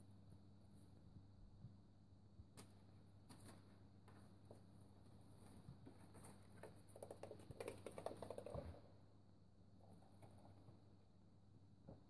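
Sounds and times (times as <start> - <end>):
kittens' paws scratching: 3.3 - 8.8.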